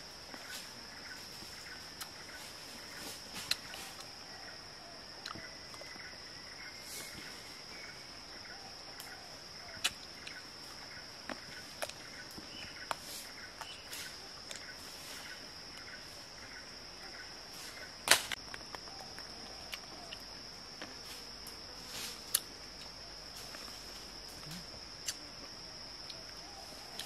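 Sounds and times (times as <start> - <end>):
insects droning: 0.0 - 27.0.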